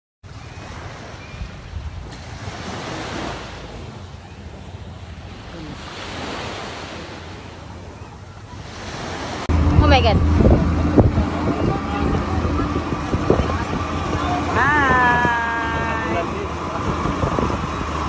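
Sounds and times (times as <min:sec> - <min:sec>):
waves washing on beach: 0:00.3 - 0:18.0
wind buffeting microphone: 0:09.5 - 0:18.0.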